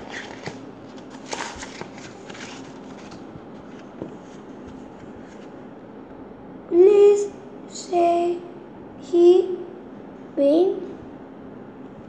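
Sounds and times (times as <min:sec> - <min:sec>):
book pages turning: 0:00.0 - 0:05.6.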